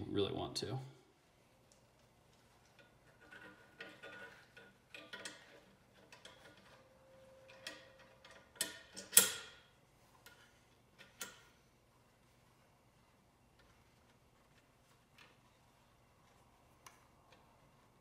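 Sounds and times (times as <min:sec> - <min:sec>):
metal parts clicking and tapping: 0:02.6 - 0:06.8, 0:07.4 - 0:09.6, 0:10.2 - 0:11.6.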